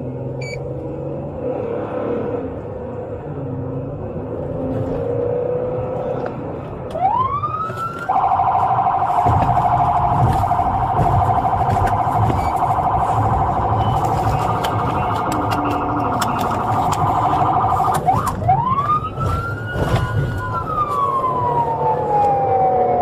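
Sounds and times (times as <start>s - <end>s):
car engine rumble: 0.0s - 23.0s
police siren: 6.9s - 23.0s.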